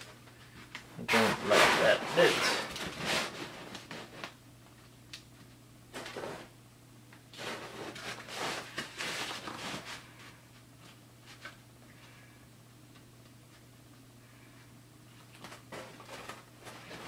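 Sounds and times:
low room hum: 0.0s - 17.0s
foam and straightedge scraping: 1.0s - 4.1s.

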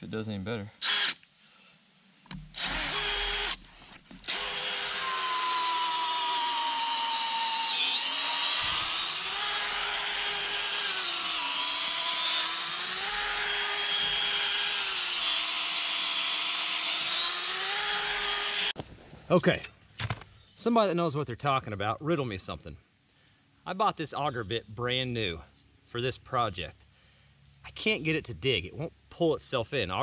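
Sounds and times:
electric drill boring into wood: 0.8s - 1.2s, 2.4s - 3.6s, 4.2s - 18.8s.

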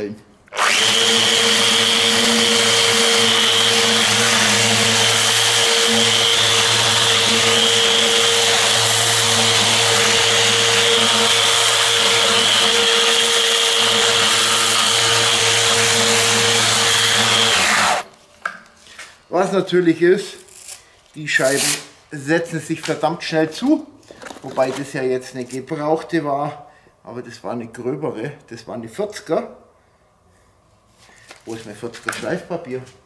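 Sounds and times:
electric sander on steel: 0.5s - 18.1s.

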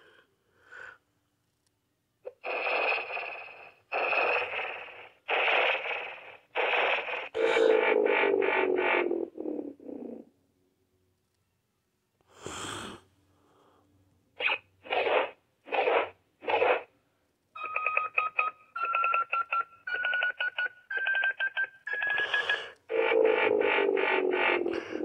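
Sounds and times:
toy electronic blasts: 2.3s - 9.4s, 14.4s - 16.9s, 21.9s - 25.0s.

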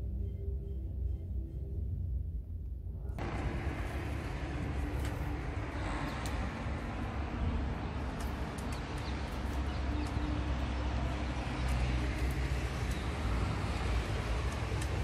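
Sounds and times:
distant road traffic rumble: 3.2s - 15.0s.

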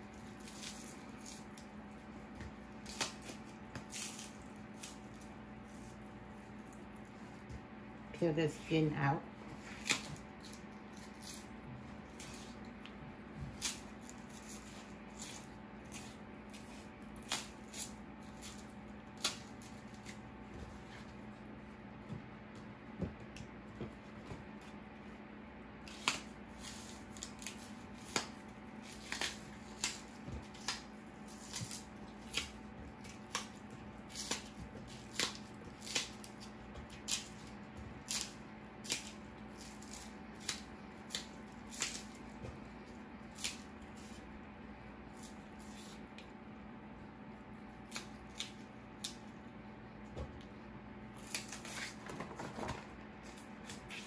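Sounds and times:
leaf stalks snapping and tearing: 0.0s - 1.7s, 2.7s - 5.9s, 9.7s - 20.2s, 25.8s - 42.4s, 43.2s - 44.2s, 47.8s - 49.3s, 51.2s - 54.0s
steady low hum: 0.0s - 54.0s.

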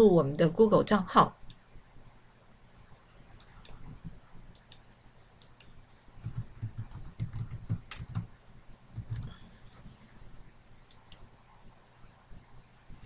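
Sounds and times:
keyboard typing: 5.4s - 9.4s.

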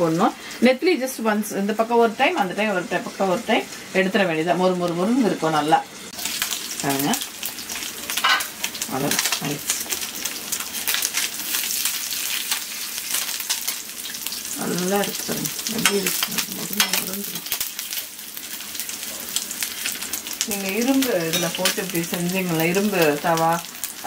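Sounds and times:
fish sizzling in oil: 0.0s - 24.0s.

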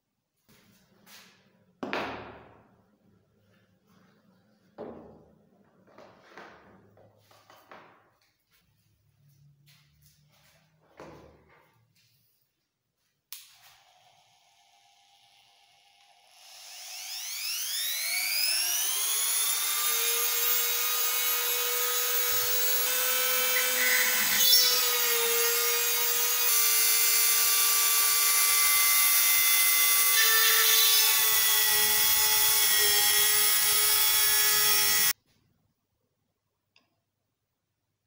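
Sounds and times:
electric drill whining: 13.5s - 35.2s.

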